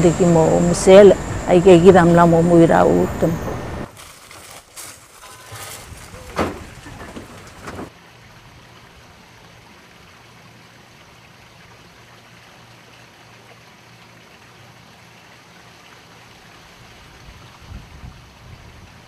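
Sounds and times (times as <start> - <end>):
steady rushing noise: 0.0 - 3.9.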